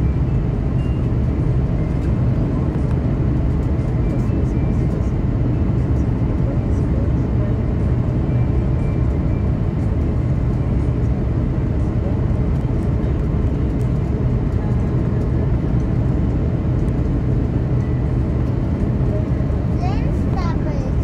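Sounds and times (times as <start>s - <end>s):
jet engines rumbling: 0.0s - 21.0s.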